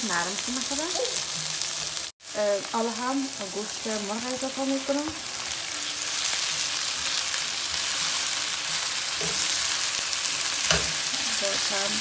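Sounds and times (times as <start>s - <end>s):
chicken sizzling in hot oil: 0.0s - 12.0s
spatula scraping pan: 5.1s - 11.8s.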